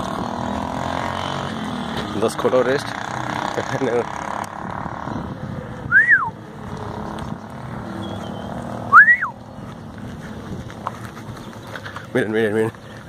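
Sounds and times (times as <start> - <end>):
person whistling: 5.9 - 6.4, 8.9 - 9.4.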